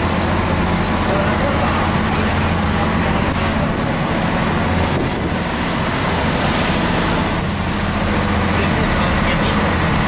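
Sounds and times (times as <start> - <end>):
boat engine humming: 0.0 - 10.0
water splashing along a hull: 0.0 - 10.0
wind buffeting microphone: 3.5 - 6.4.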